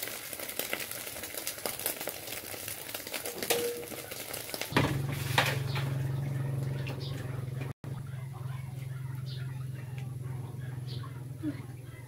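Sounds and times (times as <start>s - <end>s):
eggs sizzling in a pan: 0.0s - 6.6s
metal spatula scraping a pan: 5.0s - 5.9s.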